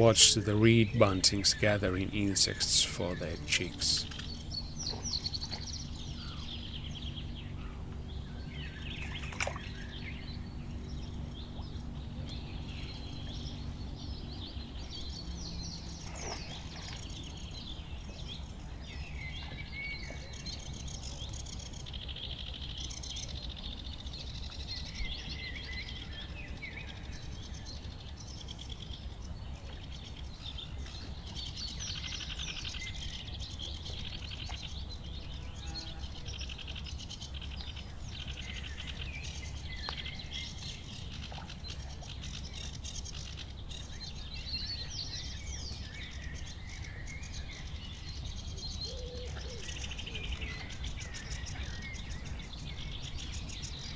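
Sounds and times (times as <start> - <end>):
steady low rumble: 0.0 - 35.4
faint low hum: 0.0 - 53.9
wetland birds singing and calling: 0.0 - 53.9.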